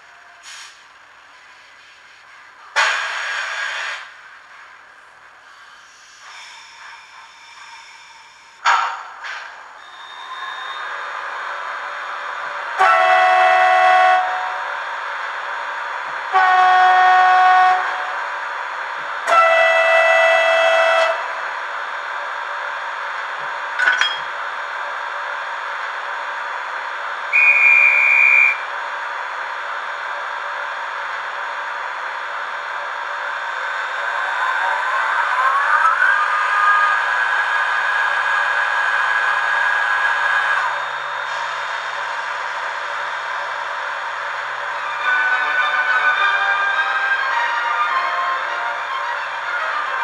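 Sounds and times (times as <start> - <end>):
high whistle tone: 9.8 - 11.0, 27.3 - 28.7.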